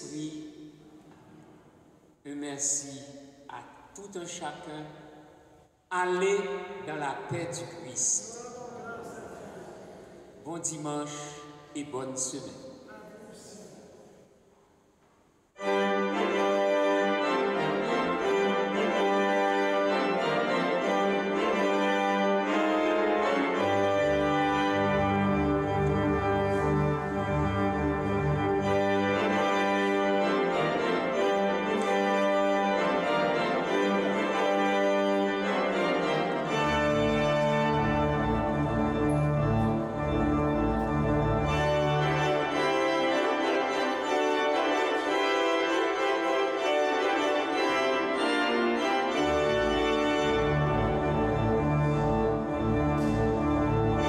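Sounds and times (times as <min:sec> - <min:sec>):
church organ chords: 0:15.6 - 0:54.0
deep organ pedal bass notes: 0:15.7 - 0:54.0.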